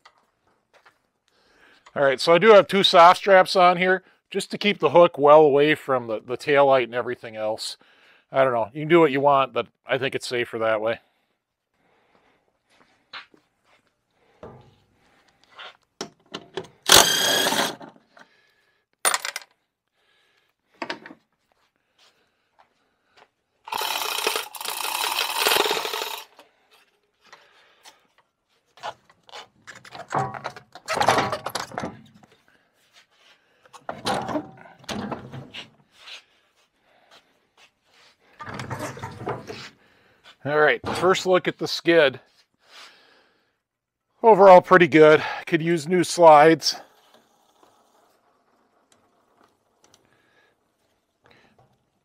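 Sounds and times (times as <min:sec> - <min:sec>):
cordless drill running: 0:16.8 - 0:17.8, 0:23.7 - 0:26.3
metal clunks and rattles: 0:29.6 - 0:32.3, 0:33.8 - 0:35.8, 0:38.4 - 0:39.7.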